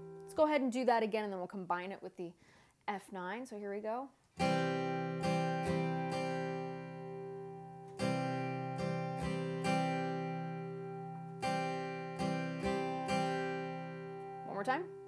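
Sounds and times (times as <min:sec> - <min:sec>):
acoustic guitar strumming: 0:00.0 - 0:00.6, 0:04.4 - 0:15.0.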